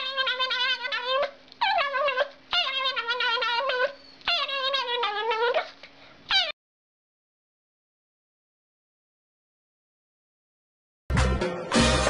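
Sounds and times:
small dog crying: 0.0s - 6.6s.

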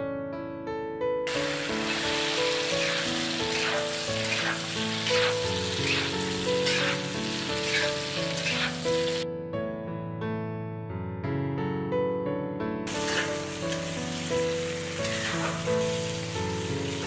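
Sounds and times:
chicken sizzling in oil: 1.3s - 9.2s, 12.9s - 17.0s
spatula stirring in wok: 1.5s - 9.2s, 12.9s - 16.1s.

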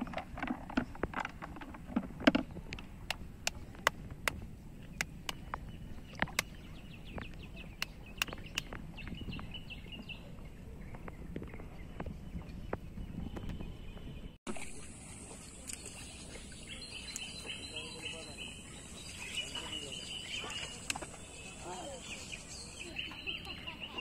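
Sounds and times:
water sloshing in bucket: 0.0s - 9.5s, 14.5s - 22.2s
sharp clicks and ticks: 7.2s - 8.8s.

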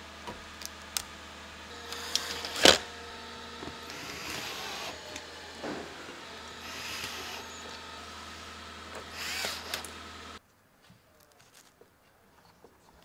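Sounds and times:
cordless drill running: 0.0s - 10.4s.

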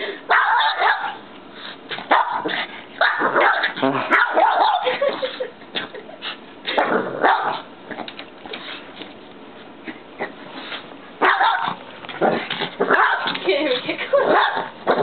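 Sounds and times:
small dog barking: 0.3s - 1.2s, 2.1s - 4.9s, 7.2s - 7.7s, 11.2s - 11.8s, 12.8s - 13.4s, 14.2s - 15.0s.

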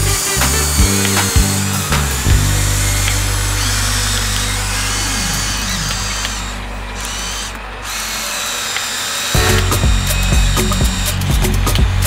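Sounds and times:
toy excavator electric motors whirring: 0.0s - 11.3s.

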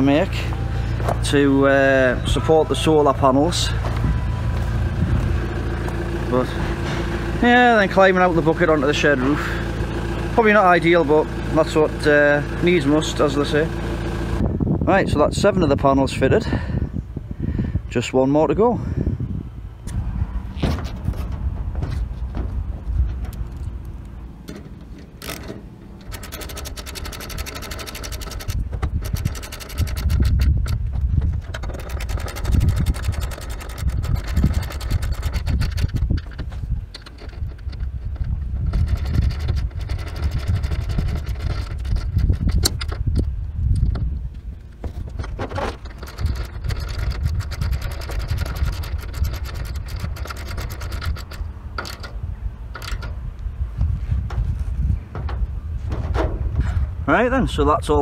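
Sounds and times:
metal scraping: 0.7s - 10.5s, 19.9s - 57.0s
wind rumbling on microphone: 1.9s - 8.8s, 14.1s - 58.0s
tool clicking fast: 25.1s - 44.0s, 45.1s - 52.2s.

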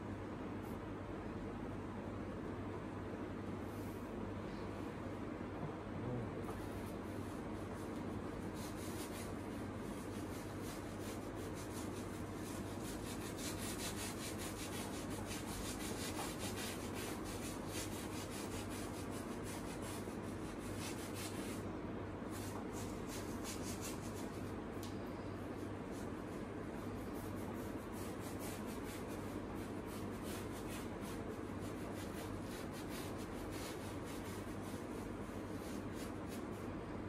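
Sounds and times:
steady low hum: 0.0s - 37.0s
paintbrush scrubbing on canvas: 6.5s - 21.7s, 22.3s - 24.6s, 25.4s - 36.6s.

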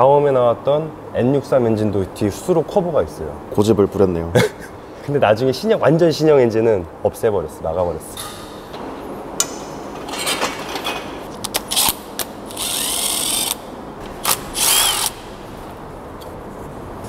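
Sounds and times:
impact wrench bursts: 11.6s - 15.5s.

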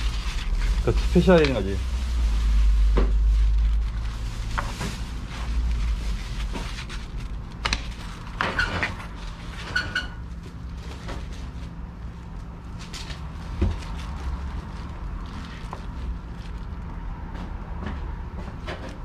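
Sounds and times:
short squeaks: 8.4s - 10.2s.

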